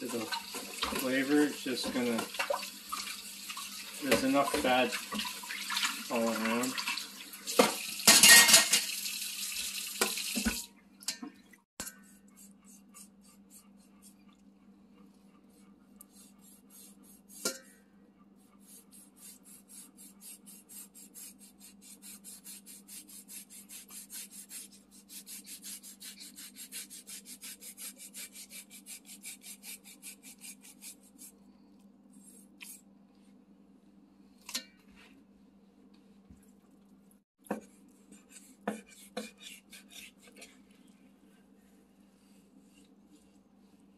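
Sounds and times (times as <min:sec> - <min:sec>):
knife slicing through fat: 0:18.7 - 0:31.3, 0:38.1 - 0:40.5.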